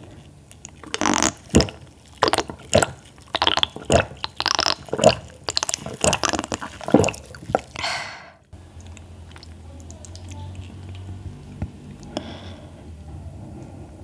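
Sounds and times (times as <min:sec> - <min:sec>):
person gulping water: 0:00.6 - 0:08.5.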